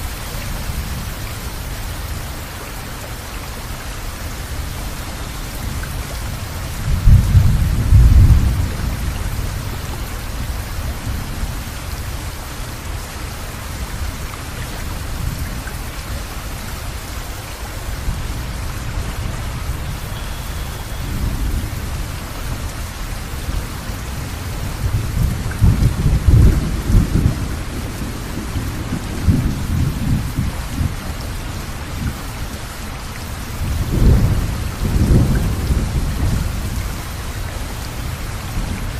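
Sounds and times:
rain hissing: 0:00.0 - 0:38.9
thunder rumbling: 0:05.6 - 0:11.9, 0:17.9 - 0:32.3, 0:33.5 - 0:38.9.

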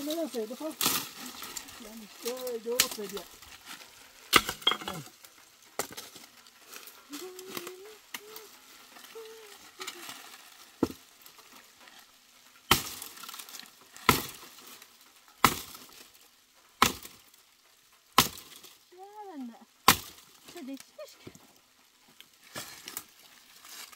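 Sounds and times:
twigs and stones clicking: 0:00.0 - 0:23.9
stick knocking on tree: 0:10.8 - 0:11.0.

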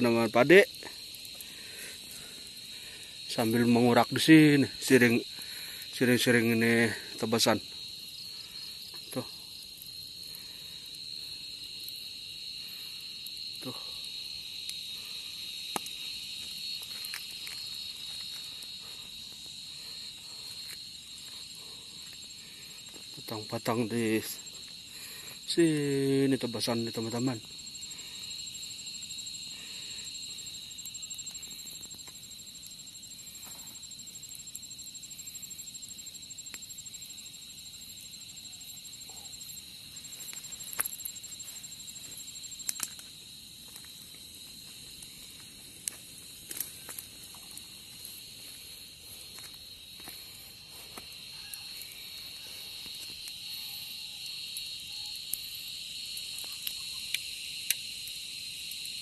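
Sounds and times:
high insect whine: 0:00.0 - 0:59.0
insects chirring drone: 0:00.0 - 0:59.0
light clicks and crackles: 0:15.7 - 0:18.7, 0:30.8 - 0:32.2, 0:40.2 - 0:44.2, 0:45.0 - 0:47.7, 0:56.2 - 0:57.8.

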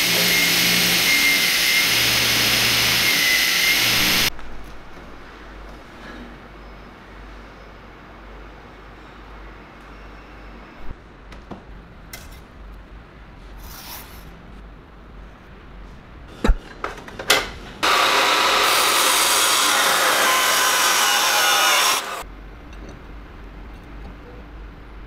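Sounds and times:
power tool grinding metal: 0:00.0 - 0:04.3, 0:17.8 - 0:22.2.

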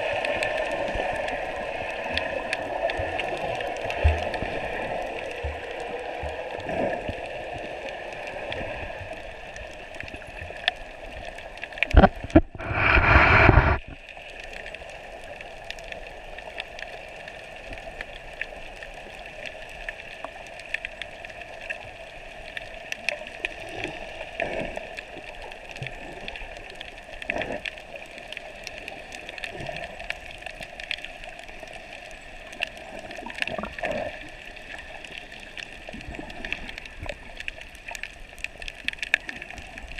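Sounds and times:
muffled underwater water hiss: 0:00.0 - 0:39.9
loud rush of water: 0:11.9 - 0:13.9.

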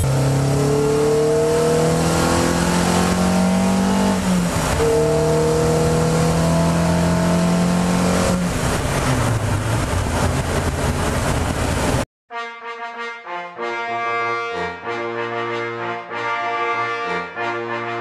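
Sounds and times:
race car engine accelerating: 0:00.0 - 0:12.0
wind and road noise: 0:00.0 - 0:12.1.

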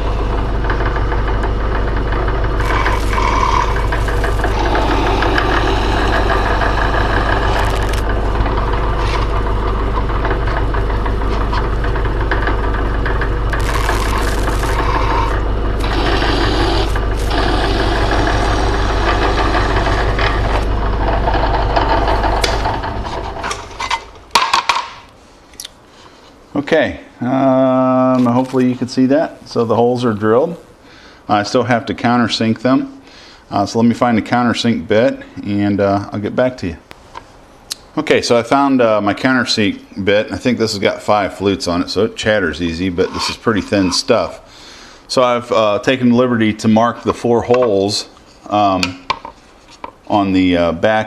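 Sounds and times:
drill press motor running: 0:00.0 - 0:23.9
bit cutting through sheet metal: 0:02.6 - 0:09.6, 0:13.4 - 0:23.2.

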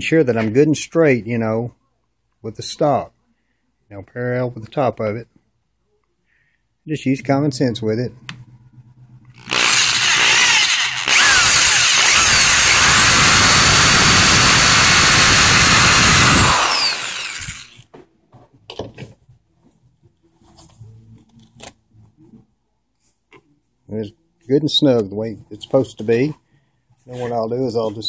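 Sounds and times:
power drill boring wood: 0:09.4 - 0:17.8.

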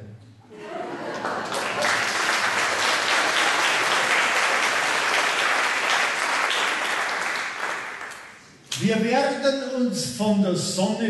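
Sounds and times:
audience applauding: 0:00.7 - 0:08.4.

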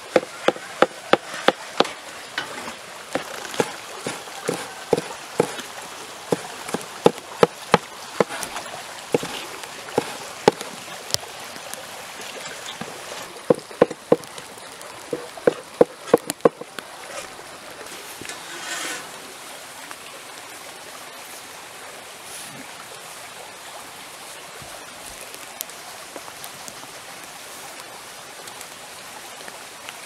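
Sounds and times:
background hiss: 0:00.0 - 0:30.0
cleaver chopping on wooden board: 0:00.1 - 0:02.0, 0:03.2 - 0:05.6, 0:06.3 - 0:08.4, 0:09.2 - 0:09.4, 0:13.4 - 0:14.3, 0:15.1 - 0:16.6.

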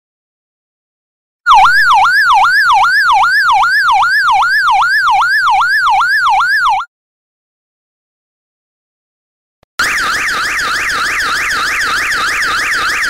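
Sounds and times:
electronic siren yelp: 0:01.5 - 0:06.9, 0:09.8 - 0:13.0.

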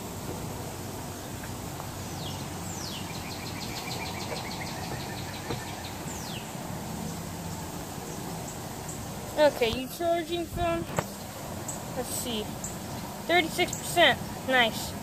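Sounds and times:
background hiss: 0:00.0 - 0:15.0
birds singing: 0:01.0 - 0:15.0
bird trill: 0:02.0 - 0:06.5.

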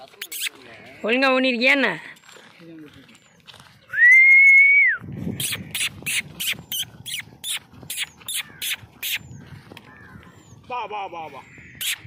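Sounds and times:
person making hissing mouth sounds: 0:05.4 - 0:09.2.

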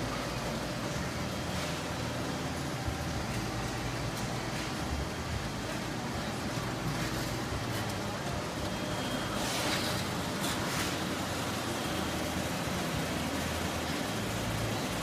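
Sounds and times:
printing press mechanical hum: 0:00.0 - 0:15.0.

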